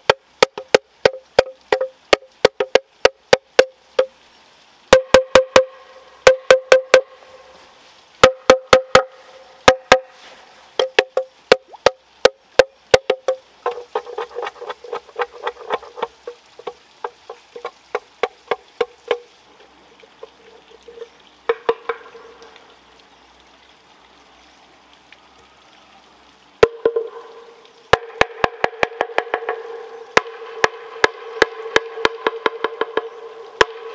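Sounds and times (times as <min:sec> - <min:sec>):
machete knocking on hollow bamboo: 0:00.0 - 0:04.1, 0:04.9 - 0:05.7, 0:06.3 - 0:07.0, 0:08.2 - 0:09.1, 0:09.7 - 0:10.1, 0:10.8 - 0:19.3, 0:21.5 - 0:22.1, 0:27.9 - 0:29.6, 0:30.2 - 0:33.8.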